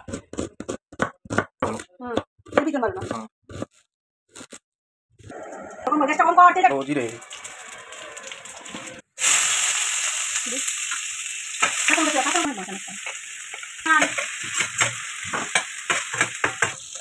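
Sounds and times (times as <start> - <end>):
onion frying in hot oil: 6.2 - 17.0
metal spatula scraping a pan: 7.0 - 9.0.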